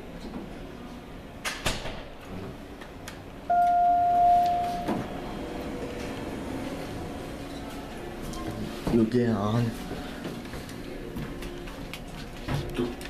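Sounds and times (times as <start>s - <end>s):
elevator arrival chime tone: 3.5s - 5.7s.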